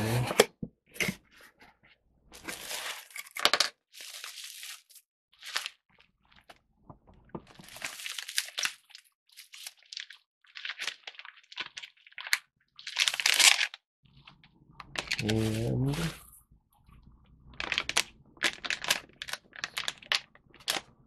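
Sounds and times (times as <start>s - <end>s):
bubble wrap crinkling: 2.4s - 3.3s, 4.0s - 5.8s, 7.4s - 16.3s, 17.6s - 21.0s.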